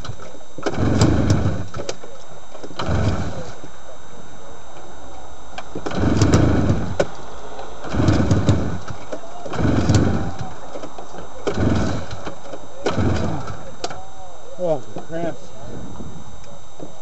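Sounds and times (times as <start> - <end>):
engine turning over: 0.0 - 3.7, 5.6 - 14.0
recoil starter pulls: 0.0 - 3.7, 5.6 - 7.2, 7.8 - 14.0.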